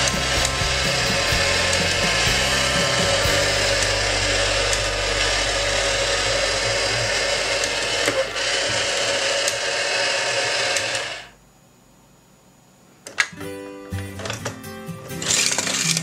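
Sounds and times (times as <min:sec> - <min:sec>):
toy motor and gears whirring: 0:00.0 - 0:11.3, 0:15.2 - 0:16.0.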